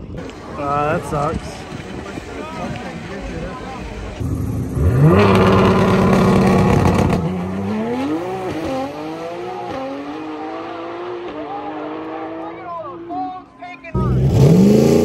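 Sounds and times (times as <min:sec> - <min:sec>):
race car engine revving: 0:04.2 - 0:12.5, 0:14.0 - 0:15.0.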